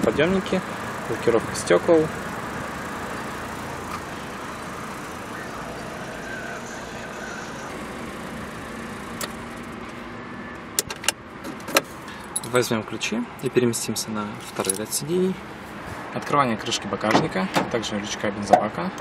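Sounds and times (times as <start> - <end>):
outdoor background noise: 0.0 - 19.0
sharp clicks and knocks: 10.8 - 11.9.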